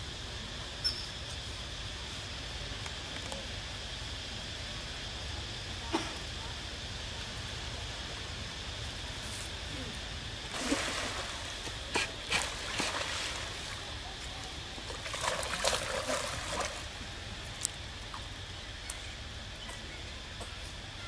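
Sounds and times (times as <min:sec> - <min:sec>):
steady background hiss: 0:00.0 - 0:21.0
water splashing: 0:10.5 - 0:13.9, 0:14.9 - 0:16.9.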